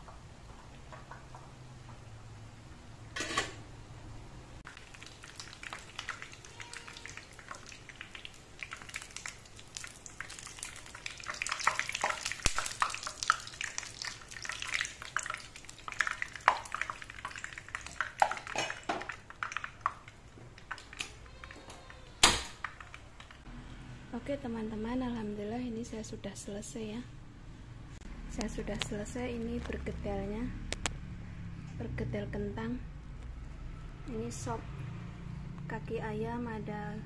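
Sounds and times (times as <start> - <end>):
fritters frying in hot oil: 4.6 - 21.6.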